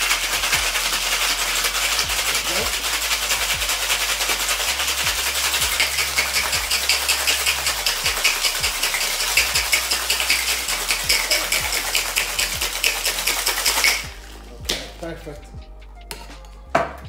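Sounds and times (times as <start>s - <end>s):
ice rattling in cocktail shaker: 0.0s - 15.1s.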